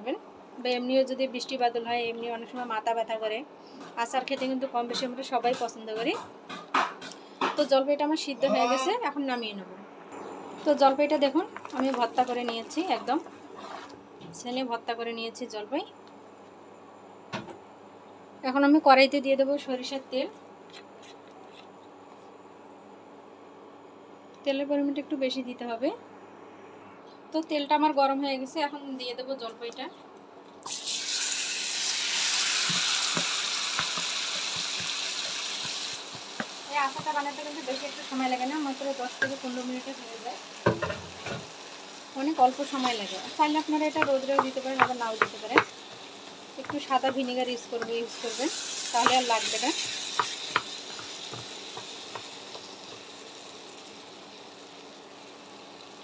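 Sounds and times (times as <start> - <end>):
food frying sizzle: 10.5 - 13.5, 30.6 - 56.0
wooden spatula tapping and scraping: 32.7 - 37.4, 42.8 - 48.2, 49.0 - 53.1.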